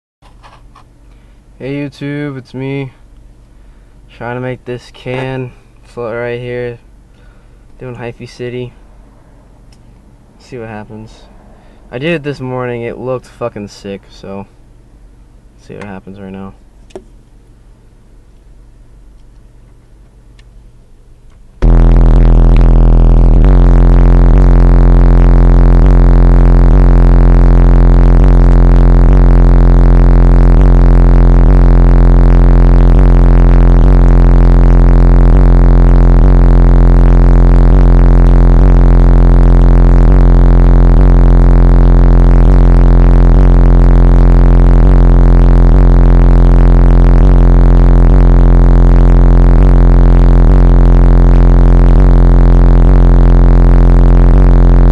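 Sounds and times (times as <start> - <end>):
loud bass-heavy car stereo music: 21.6 - 54.9.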